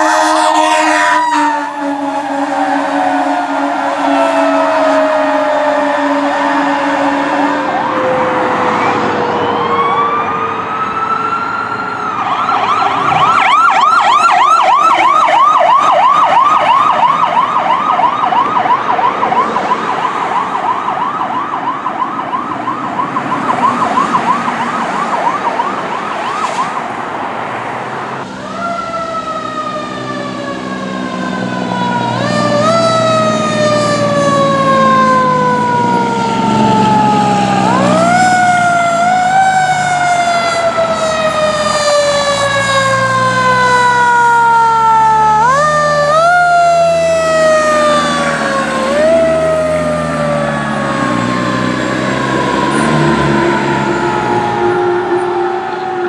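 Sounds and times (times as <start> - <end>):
electronic siren wailing and yelping: 0.0 - 26.9, 28.4 - 56.0
siren with jumping pitch: 0.0 - 27.2, 28.2 - 56.0.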